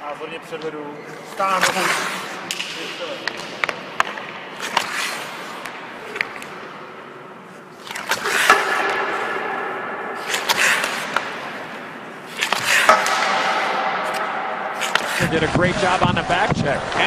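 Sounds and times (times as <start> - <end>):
stick dragging puck on ice: 0.6 - 6.7, 7.5 - 9.4, 10.2 - 17.0
hockey shot crack with echo: 1.3 - 17.0.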